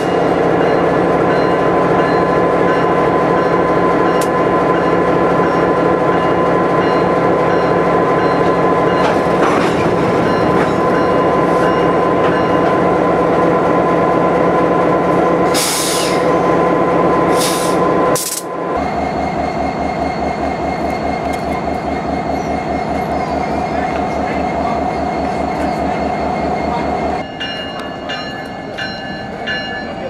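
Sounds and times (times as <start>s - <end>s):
locomotive diesel engine pulsing: 0.0s - 30.0s
locomotive engine idling: 18.8s - 30.0s.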